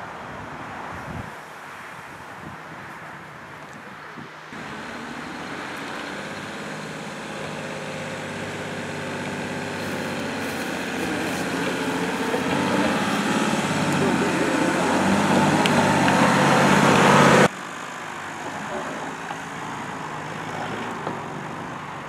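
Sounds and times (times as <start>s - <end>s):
off-road vehicle engine running: 4.6s - 21.8s.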